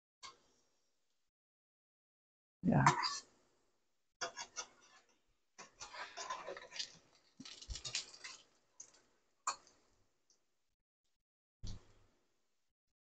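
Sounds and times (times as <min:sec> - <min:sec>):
oil crackling and popping: 0:05.6 - 0:10.4.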